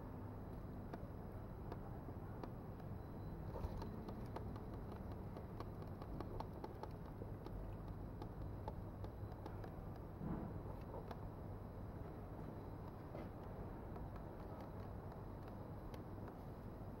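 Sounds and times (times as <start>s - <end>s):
low steady hum: 0.0s - 17.0s
faint clicks and handling noises: 0.5s - 17.0s.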